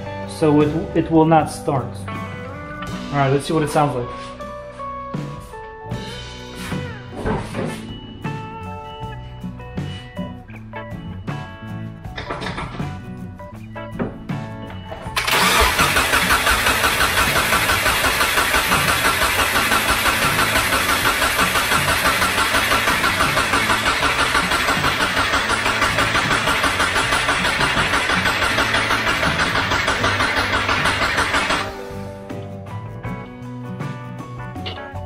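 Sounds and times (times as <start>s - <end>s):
engine cranking without firing: 15.1s - 31.9s.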